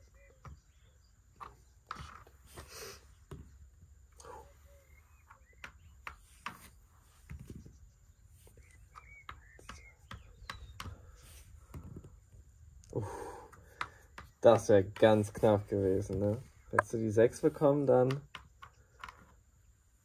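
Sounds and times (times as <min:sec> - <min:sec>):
game pieces clicking on board: 0:08.8 - 0:11.0, 0:13.5 - 0:15.4, 0:18.0 - 0:19.4.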